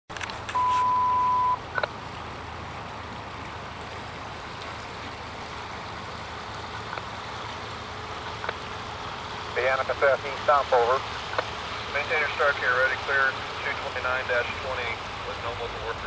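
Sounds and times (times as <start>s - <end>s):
steady hiss with low hum: 0.4s - 16.0s
two-way radio beep: 0.5s - 1.6s.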